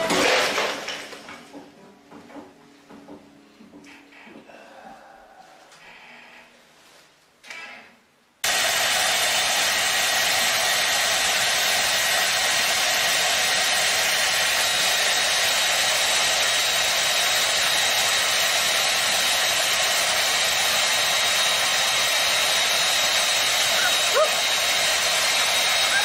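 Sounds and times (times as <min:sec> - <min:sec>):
hair dryer blowing air: 0:08.4 - 0:26.0.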